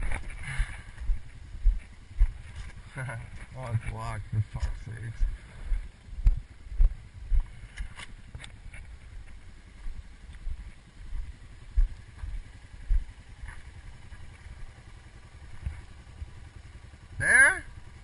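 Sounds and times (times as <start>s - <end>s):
wind rumble on microphone: 0.0s - 9.2s.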